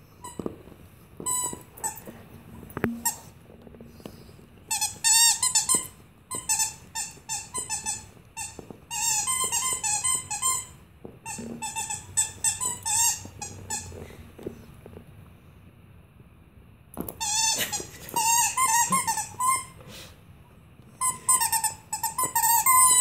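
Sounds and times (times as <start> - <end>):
dog toy squeaking: 1.2 - 2.1, 4.7 - 14.0, 17.2 - 19.8, 21.0 - 23.0.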